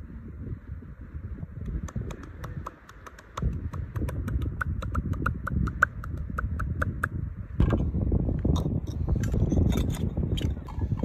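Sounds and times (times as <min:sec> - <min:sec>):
wind rumble on microphone: 0:00.0 - 0:11.0
rapid even clicking: 0:01.7 - 0:07.1.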